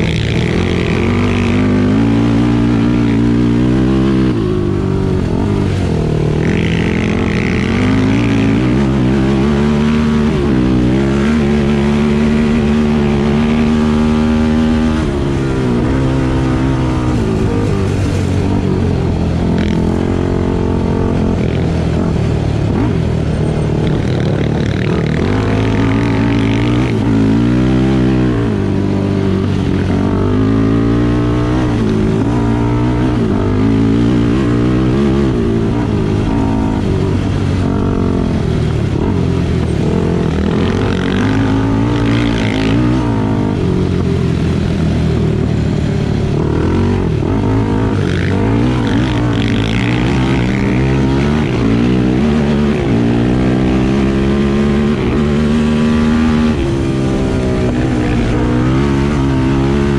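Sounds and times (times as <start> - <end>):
constant rushing noise: 0.0 - 59.9
off-road vehicle engine revving: 0.0 - 59.9.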